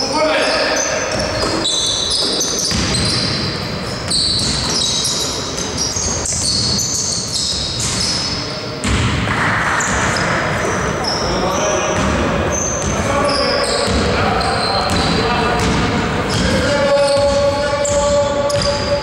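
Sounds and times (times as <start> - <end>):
basketball bouncing on court: 1.1 - 11.2, 11.8 - 19.0
players calling out: 9.3 - 19.0.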